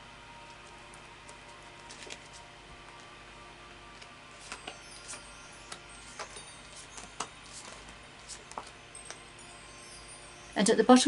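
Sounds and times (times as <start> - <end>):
cards clicking and tapping: 4.0 - 6.4, 7.0 - 9.2.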